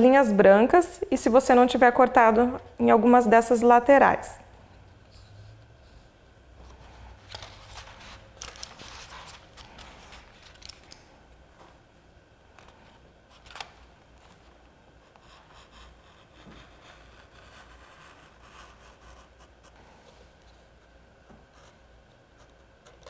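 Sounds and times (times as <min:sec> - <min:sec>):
paper rustling: 0:07.2 - 0:11.0.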